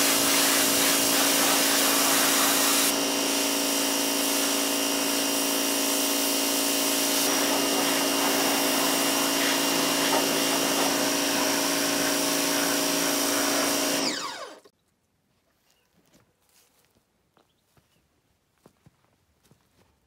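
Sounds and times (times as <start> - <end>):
water jet hissing: 0.0 - 5.1, 6.1 - 14.2
pressure washer motor humming: 0.0 - 14.7.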